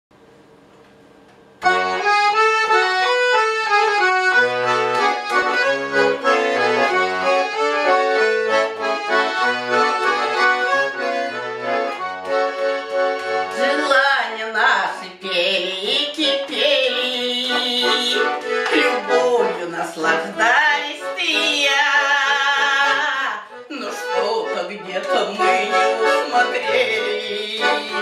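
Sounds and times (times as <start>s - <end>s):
button accordion playing folk melody: 1.6s - 28.0s
woman singing: 13.5s - 28.0s.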